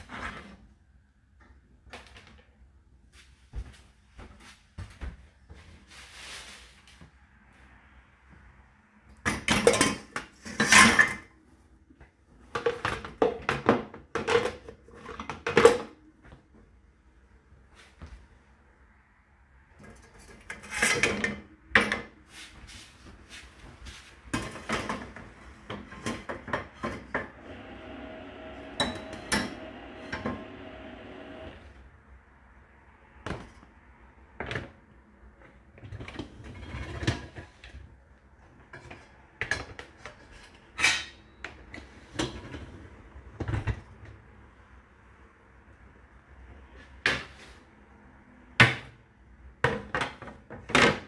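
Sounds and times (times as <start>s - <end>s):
steady hum: 27.4s - 31.8s.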